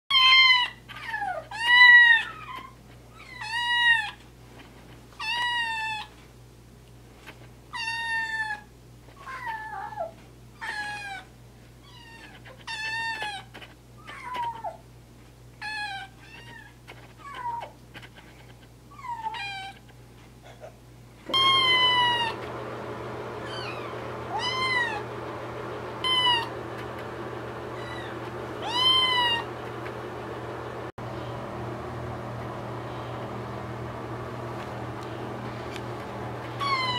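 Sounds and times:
kitten meowing: 0.1s - 4.2s, 21.3s - 22.4s, 23.4s - 25.1s, 26.0s - 26.5s, 27.8s - 29.5s, 36.6s - 36.9s.

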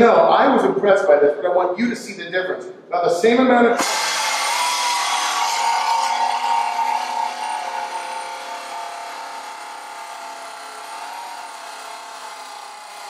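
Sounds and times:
air-motor whine: 3.8s - 13.0s
sanding belt hissing on metal: 3.8s - 13.0s.

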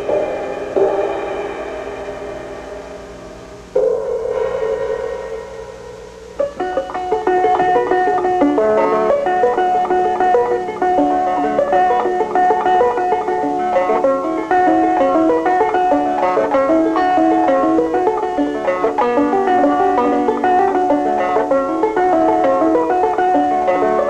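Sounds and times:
quickly picked banjo music: 6.4s - 24.0s.

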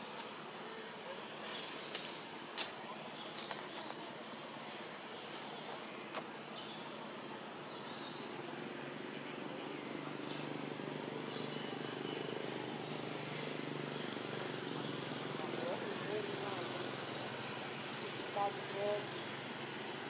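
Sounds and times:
steady hiss: 0.0s - 11.2s.

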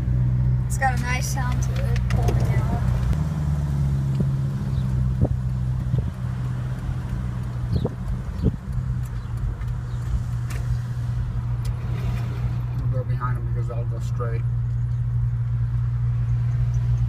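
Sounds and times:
car engine drone and road noise: 0.0s - 17.0s.

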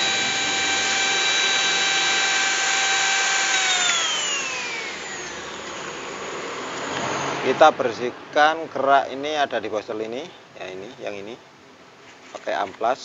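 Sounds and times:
hand mixer motor whining: 0.0s - 7.1s.

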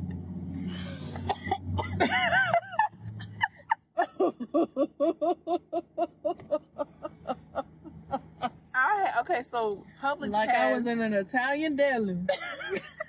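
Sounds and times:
women laughing hard: 1.2s - 8.6s, 12.3s - 13.0s.

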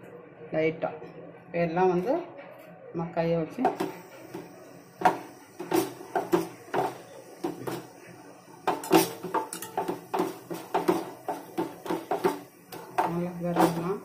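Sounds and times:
meat knocking on metal bowl: 3.7s - 7.9s, 8.7s - 14.0s.

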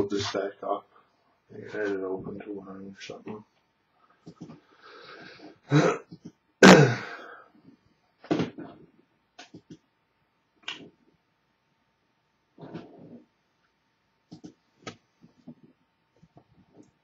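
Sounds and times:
man coughing: 5.7s - 7.4s.

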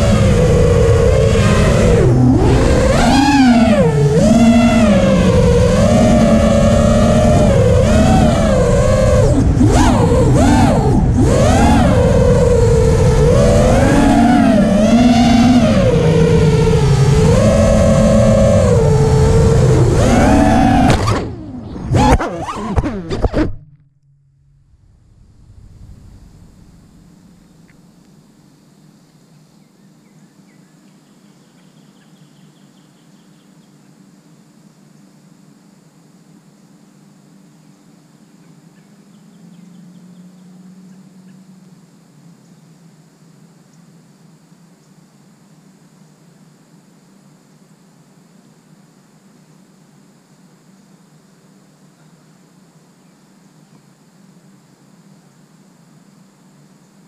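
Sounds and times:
model aircraft motor whining: 0.0s - 23.2s
steady low hum: 0.0s - 57.0s
bird chirping: 29.3s - 33.9s, 38.4s - 41.4s.

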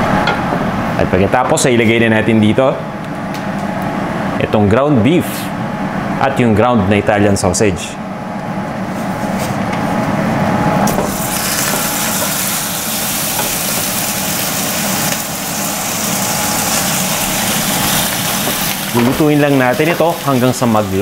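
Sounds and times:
steady low hum: 0.0s - 21.0s
meat sizzling in oil: 11.0s - 21.0s.

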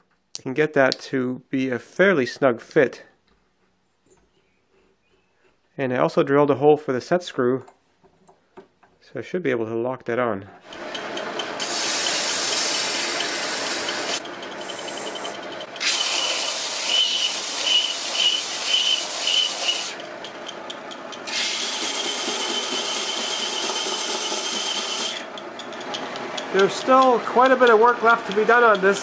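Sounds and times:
belt sander motor running: 10.7s - 29.0s
belt sander sanding wood: 10.7s - 29.0s.

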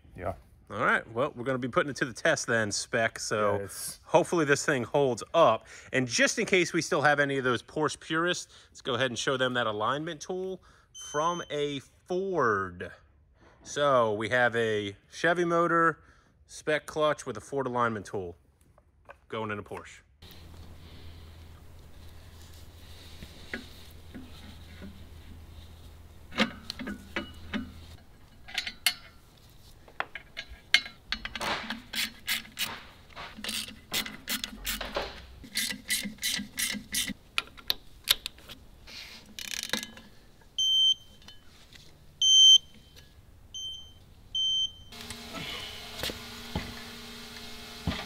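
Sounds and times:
hand ratchet clicking: 33.4s - 34.8s, 35.5s - 38.4s.

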